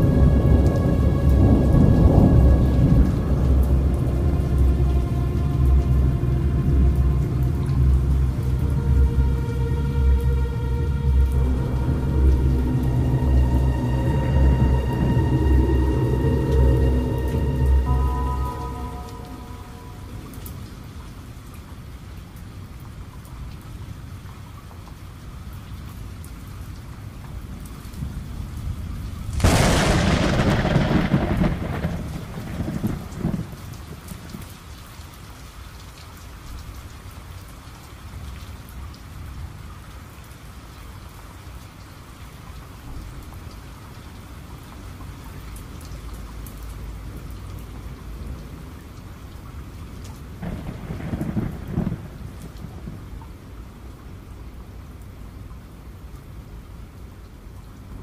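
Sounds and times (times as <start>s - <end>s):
thunderclap rumbling: 0.0s - 21.0s, 28.8s - 34.4s, 50.4s - 53.4s
steady rain: 0.0s - 58.0s.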